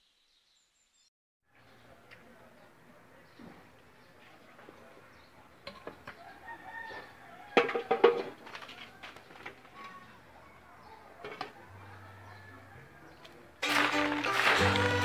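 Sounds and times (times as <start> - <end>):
rooster crowing: 6.2 - 8.0, 11.6 - 13.1.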